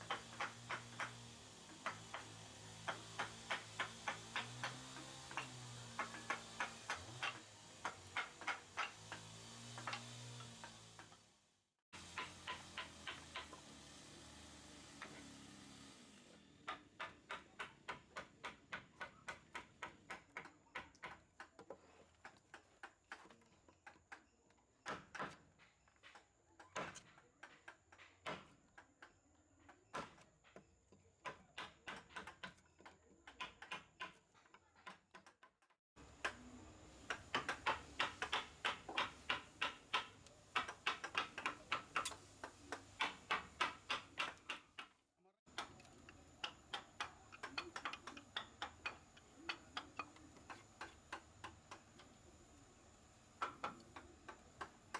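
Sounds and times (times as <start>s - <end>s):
mallet tapping wood chisel: 0.0s - 11.2s, 12.0s - 13.6s, 16.7s - 24.2s, 31.2s - 35.4s, 36.1s - 52.3s, 53.4s - 54.9s.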